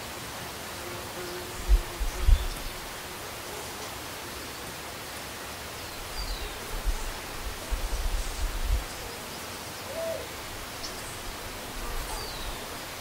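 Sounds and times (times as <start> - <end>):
wind on microphone: 1.6 - 2.9, 6.1 - 9.1.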